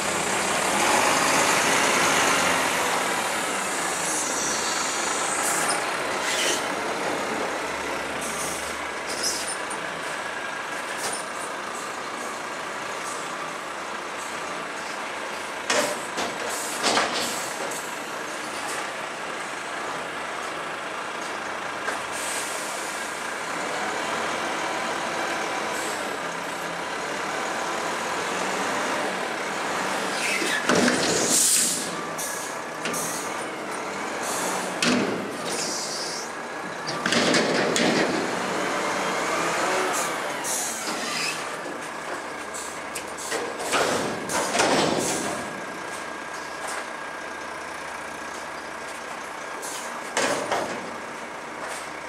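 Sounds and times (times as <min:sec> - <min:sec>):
diesel engine running: 0:00.0 - 0:52.0
air brakes hissing: 0:22.1 - 0:23.2, 0:30.1 - 0:33.3, 0:34.2 - 0:34.8, 0:35.4 - 0:36.3, 0:40.0 - 0:41.5, 0:42.5 - 0:44.4, 0:49.6 - 0:50.0.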